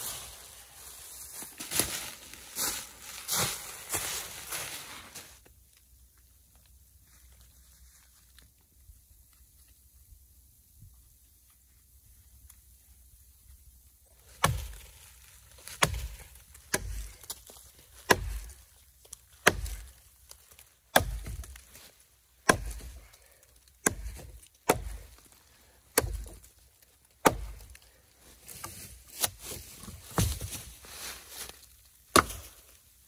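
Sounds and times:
hatchet chopping a log: 14.4s - 14.9s, 15.7s - 17.4s, 18.0s - 18.6s, 19.4s - 20.0s, 20.9s - 21.6s, 22.4s - 23.0s, 23.8s - 25.2s, 25.9s - 26.5s, 27.2s - 27.8s, 32.1s - 32.5s.

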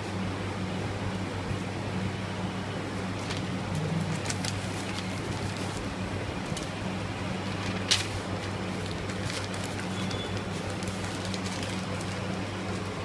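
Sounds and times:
low electrical hum: 0.0s - 13.0s
paper wrapper crackling: 3.2s - 5.9s, 7.5s - 13.0s.

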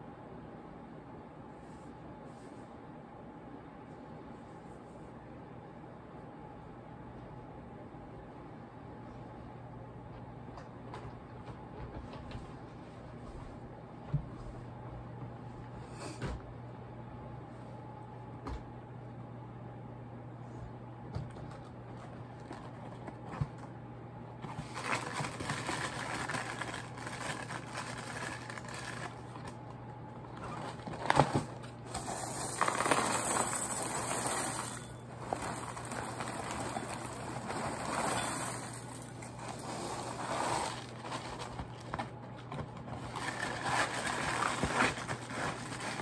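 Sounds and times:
steady low hum: 0.0s - 46.0s
cardboard and plastic bag rustling: 24.4s - 29.6s, 30.2s - 46.0s.

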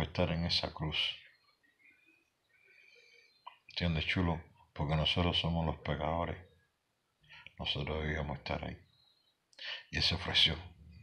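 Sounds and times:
man speaking: 0.0s - 1.2s, 3.8s - 6.4s, 7.6s - 8.8s, 9.6s - 10.7s.

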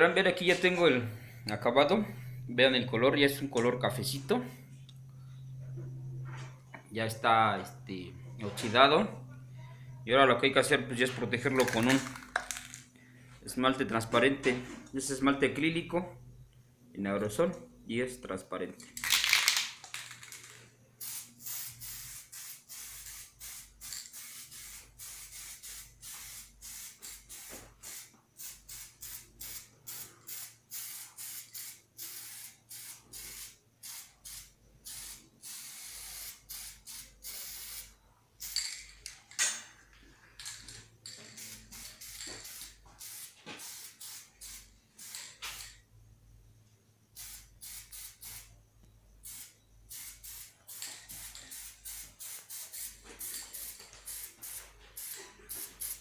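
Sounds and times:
aerosol can spraying: 20.3s - 38.7s, 41.2s - 45.8s, 47.2s - 48.5s, 49.2s - 56.0s.

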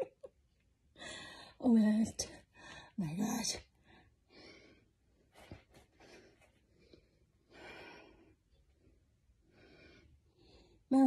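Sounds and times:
woman breathing heavily: 1.0s - 1.6s, 2.4s - 3.0s, 3.8s - 10.9s.

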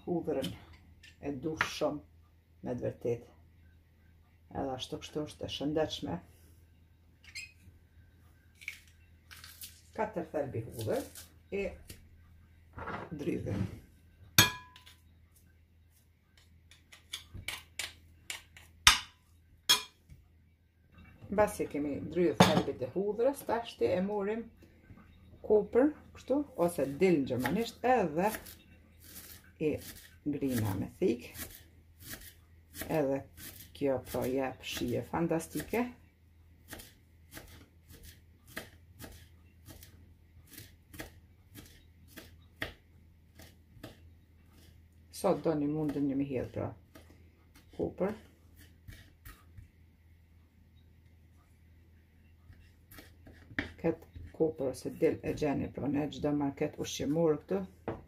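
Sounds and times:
knife chopping on wooden board: 36.7s - 39.9s, 40.5s - 44.0s.

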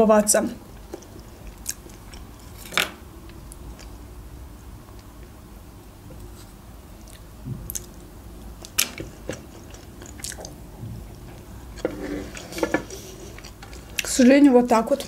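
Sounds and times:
close-up chewing: 0.7s - 2.6s, 6.3s - 14.2s.

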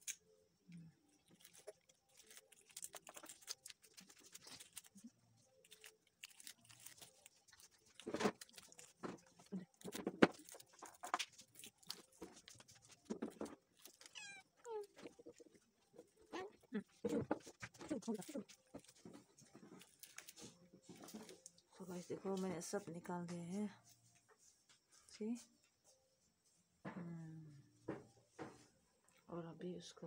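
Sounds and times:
dry comb cells crackling: 1.1s - 15.5s
plastic bag rustling: 1.2s - 16.0s.

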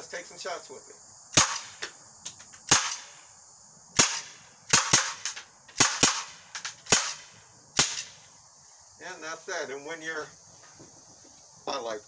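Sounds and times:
pellet pistol shots: 1.4s - 1.9s, 2.6s - 3.2s, 4.0s - 8.2s.

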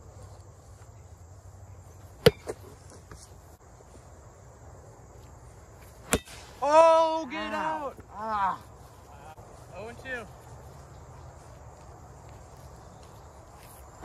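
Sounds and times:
bat hitting ball crack: 6.0s - 6.6s.

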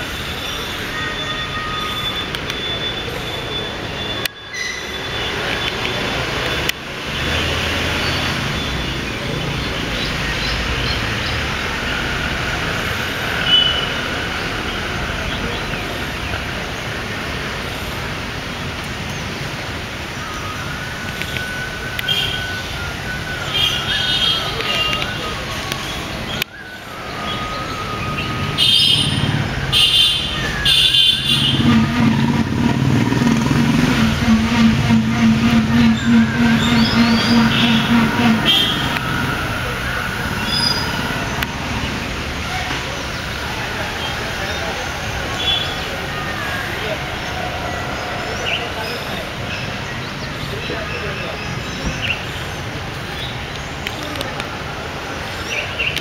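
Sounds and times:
vehicle engine humming: 0.0s - 50.9s
distant road traffic: 0.0s - 56.0s
brief high tone: 23.4s - 42.0s.

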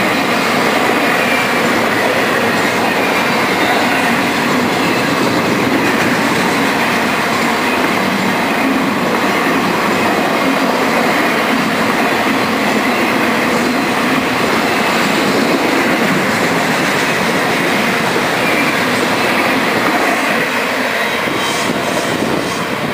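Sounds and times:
steel wheels running on rail: 0.0s - 22.9s.

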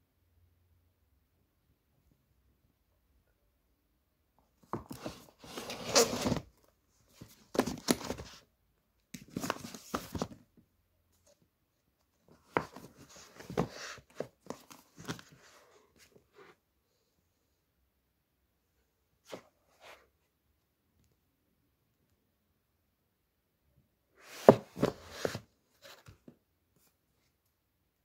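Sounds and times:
books scraping and rustling: 4.7s - 6.5s, 12.4s - 16.5s, 24.2s - 26.1s.

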